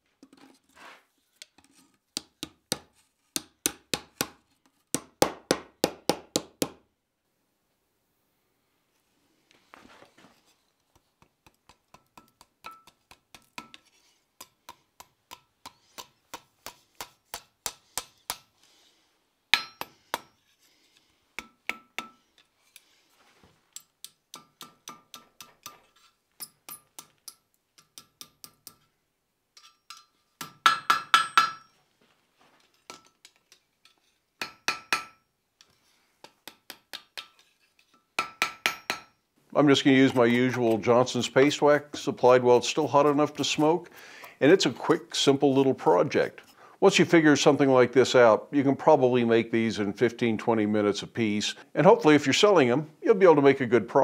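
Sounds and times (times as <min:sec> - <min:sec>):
hammer striking steel on anvil: 0:11.9 - 0:13.0, 0:14.4 - 0:18.5, 0:19.5 - 0:20.4, 0:21.4 - 0:22.2, 0:23.8 - 0:25.8, 0:26.4 - 0:28.9, 0:29.6 - 0:31.8, 0:34.4 - 0:35.2, 0:36.2 - 0:37.5, 0:38.2 - 0:39.2.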